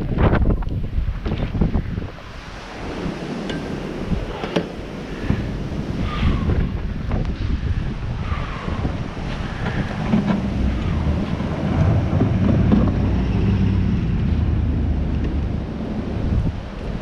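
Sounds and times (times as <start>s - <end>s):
wind buffeting microphone: 0.0s - 17.0s
truck engine driving past: 10.1s - 16.2s.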